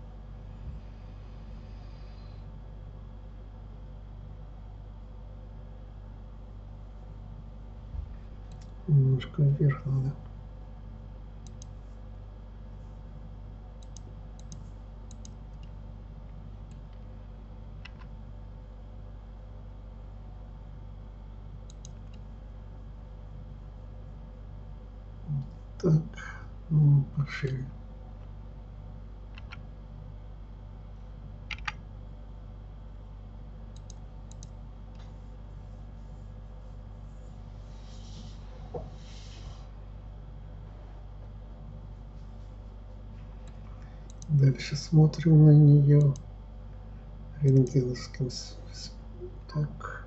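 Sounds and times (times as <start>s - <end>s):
steady low hum: 0.0s - 50.0s
computer control clicks: 8.5s - 8.8s, 11.4s - 11.8s, 13.8s - 15.8s, 21.6s - 22.2s, 31.5s - 31.8s, 33.7s - 34.6s, 43.4s - 44.4s, 46.0s - 46.3s
mouse and keyboard clicks: 13.8s - 15.7s, 17.8s - 18.1s, 29.3s - 29.6s, 31.5s - 31.8s.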